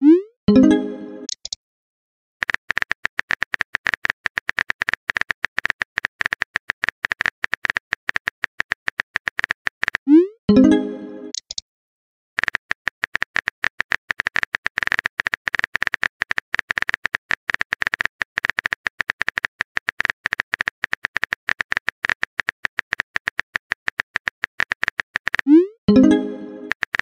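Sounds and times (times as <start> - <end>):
phone keyboard clicks: 2.4 - 10.0, 12.4 - 25.5, 26.7 - 27.0.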